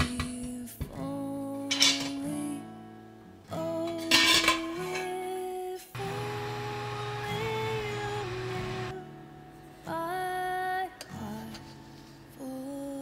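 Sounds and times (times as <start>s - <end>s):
acoustic guitar song: 0.0s - 13.0s
pot lid clattering: 1.7s - 2.2s, 4.0s - 5.1s.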